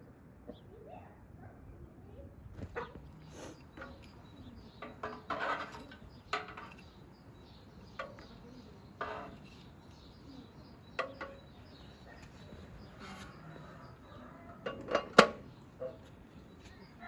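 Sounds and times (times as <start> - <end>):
tongs scraping: 2.8 - 7.0, 8.0 - 10.1.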